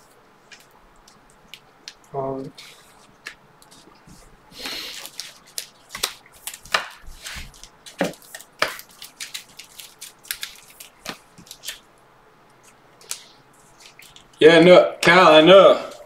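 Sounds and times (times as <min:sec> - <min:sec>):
cards clicking and tapping: 0:03.1 - 0:11.8.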